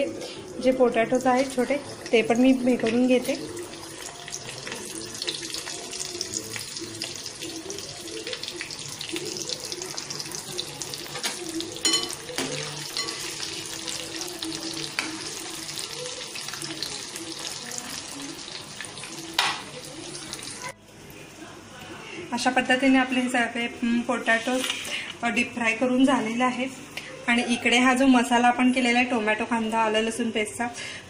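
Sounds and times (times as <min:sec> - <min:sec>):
potatoes sizzling in hot oil: 0:00.0 - 0:20.8
metal spoon clinking on pan: 0:11.2 - 0:13.5.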